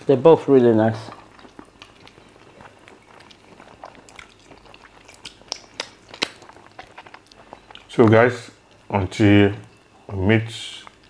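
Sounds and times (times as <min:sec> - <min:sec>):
wet mouth smacks chewing: 0:01.1 - 0:07.9.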